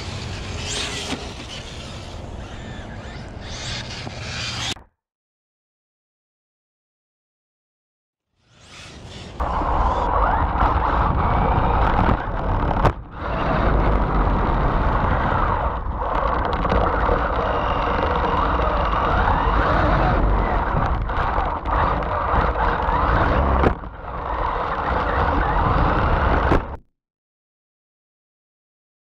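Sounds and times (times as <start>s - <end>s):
rc car tyre and wind rush: 0.0s - 4.8s, 8.4s - 26.9s
electric motor whine: 8.5s - 26.8s.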